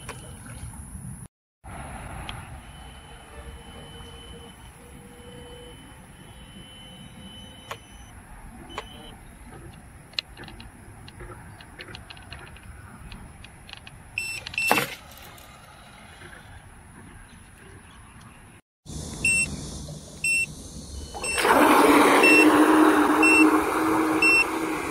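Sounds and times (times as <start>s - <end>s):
electronic beeps: 2.5s - 9.2s, 14.2s - 14.8s, 19.2s - 19.6s, 20.2s - 21.5s, 22.2s - 22.5s
electric motor whine: 18.9s - 24.9s.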